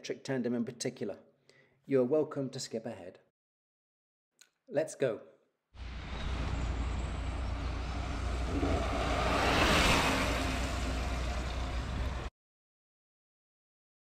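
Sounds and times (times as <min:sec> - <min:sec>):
tyres rushing on tarmac: 0:05.8 - 0:12.3.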